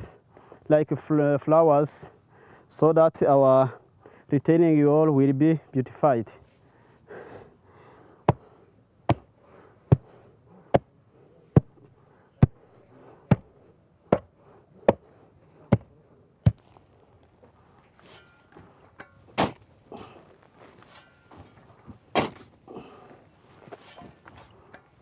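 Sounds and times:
wooden tamper thumping soil: 15.7s - 16.8s, 18.0s - 23.0s
shovel scraping into soil: 18.0s - 22.6s, 23.6s - 24.5s.

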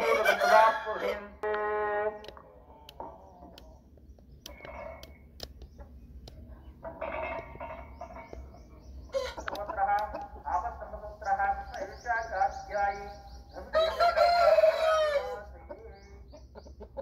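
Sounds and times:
roosters calling: 0.0s - 17.0s
sharp clicks: 2.2s - 6.5s, 9.4s - 10.3s.

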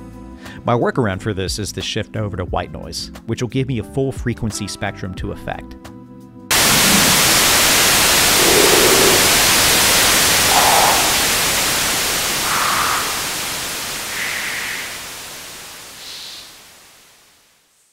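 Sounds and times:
white noise hiss stepping in pitch: 6.5s - 17.9s.

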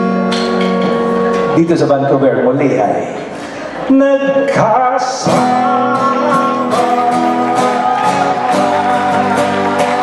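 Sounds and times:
acoustic guitar chords: 0.0s - 10.0s
hand claps: 7.7s - 10.0s.

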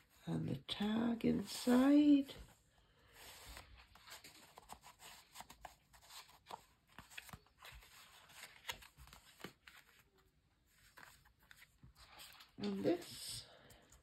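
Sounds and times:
pages flipping: 3.2s - 13.1s
paper rustling and ticking: 3.6s - 14.0s.

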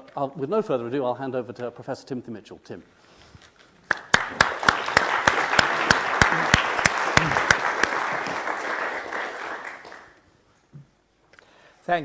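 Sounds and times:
audience applauding: 3.9s - 10.2s
person clapping close: 3.9s - 10.2s.

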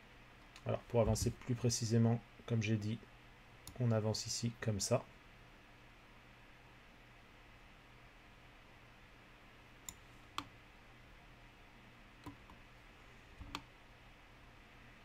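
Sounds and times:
faint steady hum: 0.0s - 15.0s
computer mouse clicks: 9.8s - 10.5s, 12.2s - 12.6s, 13.4s - 13.7s.

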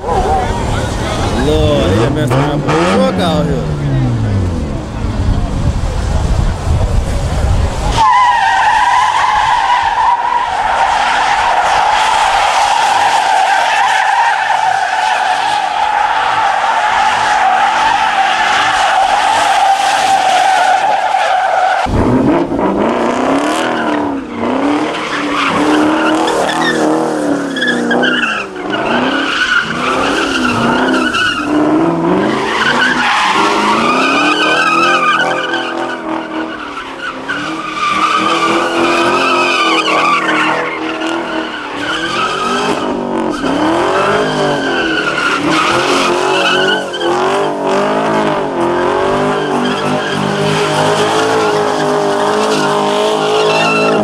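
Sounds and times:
car engine revving: 0.0s - 20.2s, 21.8s - 54.0s
tyres squealing: 32.2s - 47.6s, 49.2s - 54.0s.

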